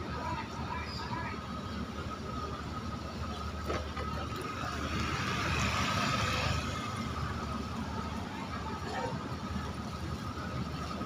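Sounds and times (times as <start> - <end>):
road traffic: 0.0 - 11.0.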